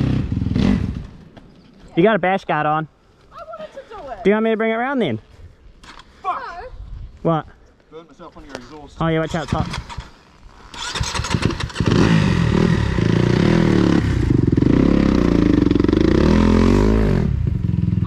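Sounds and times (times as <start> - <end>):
dirt bike engine revving: 0.0 - 1.1, 9.1 - 18.0.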